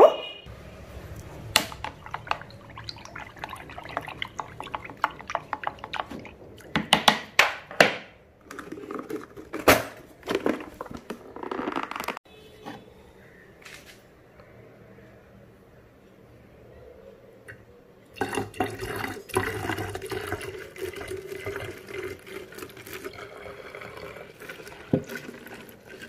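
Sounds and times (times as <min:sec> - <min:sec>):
liquid sloshing: 0:01.0 - 0:07.4, 0:08.4 - 0:12.2, 0:18.2 - 0:26.0.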